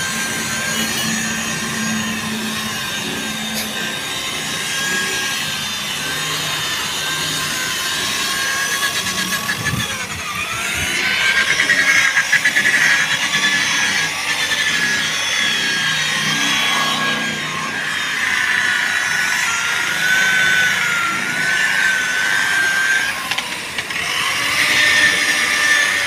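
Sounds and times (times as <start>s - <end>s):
rotary polisher motor whine: 0.0s - 26.0s.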